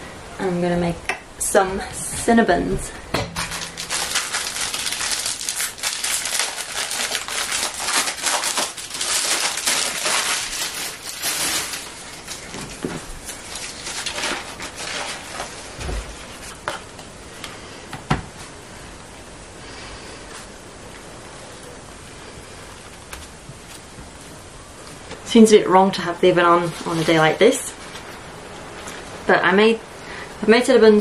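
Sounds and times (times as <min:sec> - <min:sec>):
paper crinkling: 0:03.4 - 0:16.8.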